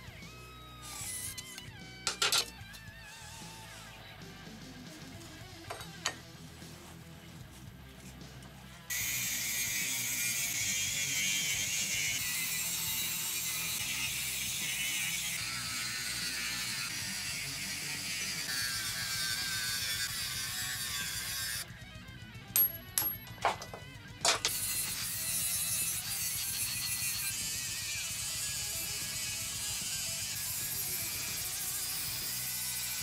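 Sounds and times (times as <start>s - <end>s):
quiet background music: 0.0s - 33.0s
angle grinder cutting steel: 0.6s - 2.5s, 8.9s - 21.7s, 23.0s - 33.0s.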